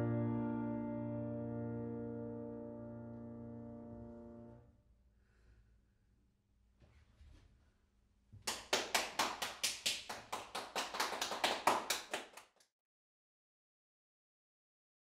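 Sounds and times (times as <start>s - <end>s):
hands clapping: 8.4s - 12.6s.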